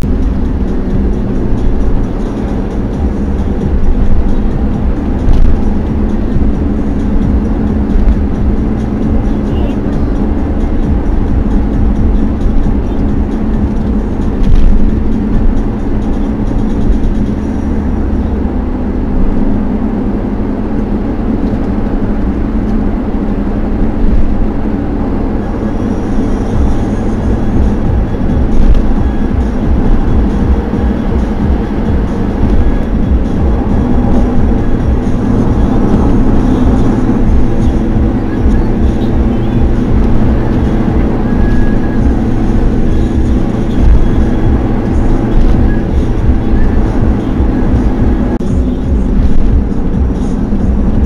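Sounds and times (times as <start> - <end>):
vehicle road and engine rumble: 0.0 - 51.0.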